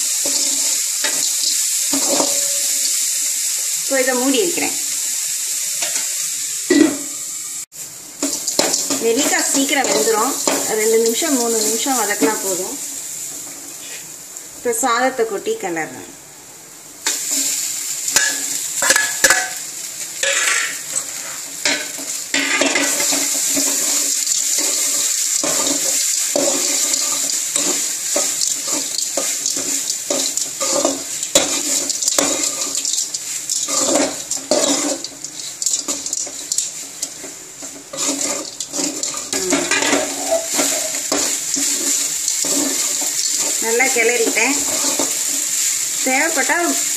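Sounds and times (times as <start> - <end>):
steady hiss: 0.0 - 46.9
metal spatula scraping pan: 0.2 - 2.8, 8.2 - 12.4, 20.2 - 45.5.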